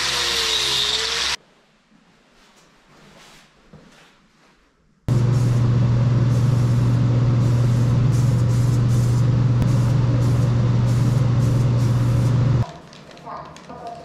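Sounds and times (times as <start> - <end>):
electric motor humming: 5.1 - 12.6.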